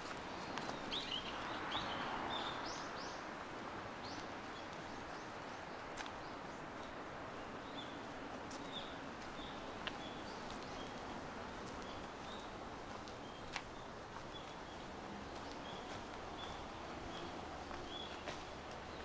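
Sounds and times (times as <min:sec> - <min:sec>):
steady outdoor hiss: 0:00.0 - 0:19.0
small birds chirping: 0:07.5 - 0:19.0.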